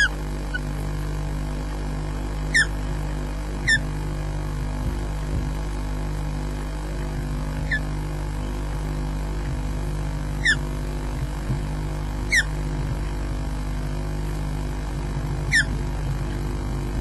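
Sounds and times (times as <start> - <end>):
low background hum: 0.0 - 17.0
bird whistled calls: 2.5 - 2.7, 10.4 - 10.6, 12.3 - 12.5, 15.5 - 15.7.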